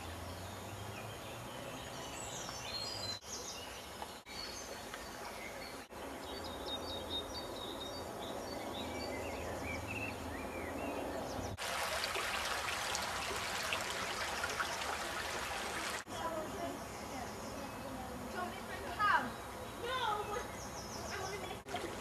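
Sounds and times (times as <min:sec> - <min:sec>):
small birds singing: 0:00.0 - 0:11.6, 0:13.2 - 0:22.0
outdoor background noise: 0:00.0 - 0:22.0
running water hiss: 0:11.6 - 0:16.3.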